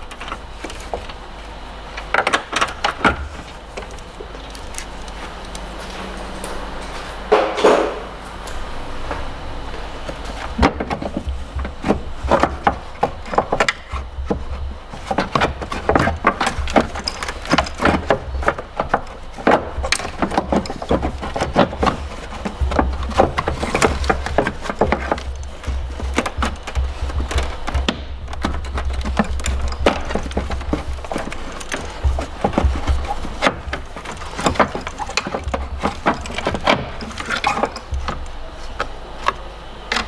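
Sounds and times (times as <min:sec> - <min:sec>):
low steady hum: 0:00.0 - 0:40.0
hand tools clicking and knocking: 0:10.1 - 0:40.0.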